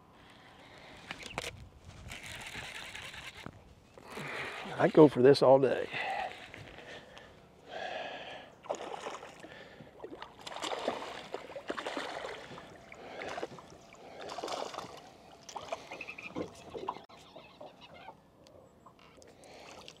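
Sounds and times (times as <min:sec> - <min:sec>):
water splashing and sloshing: 0:08.6 - 0:17.1, 0:19.1 - 0:20.0.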